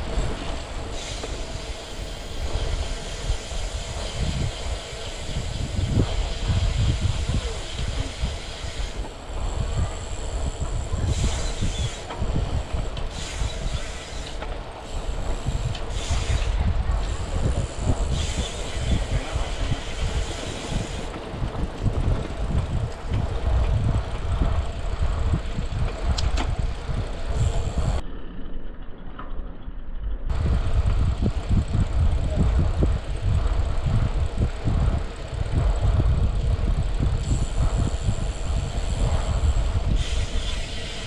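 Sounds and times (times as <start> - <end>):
wind buffeting microphone: 0.0 - 28.0, 30.3 - 41.0.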